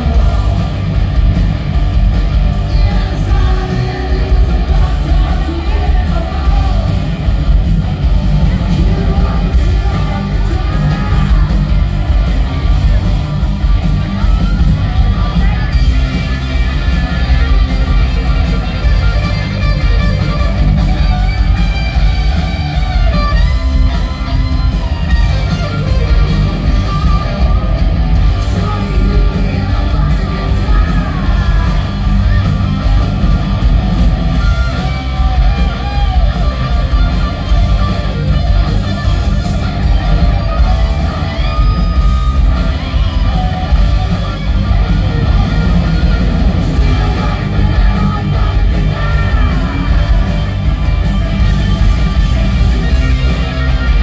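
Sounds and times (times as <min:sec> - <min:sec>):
live rock band playing: 0:00.0 - 0:54.0
person singing: 0:28.2 - 0:32.4.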